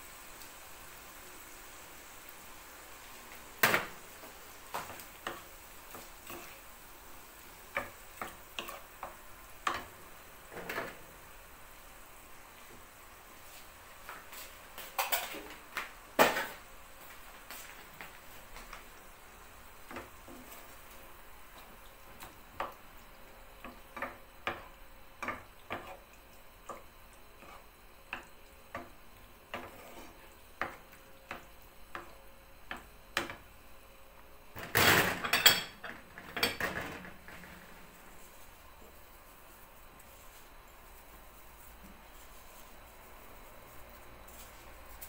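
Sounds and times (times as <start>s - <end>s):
wooden spoon scraping frying pan: 3.7s - 6.8s, 7.4s - 11.1s, 19.8s - 20.9s, 23.6s - 26.0s, 26.7s - 32.1s.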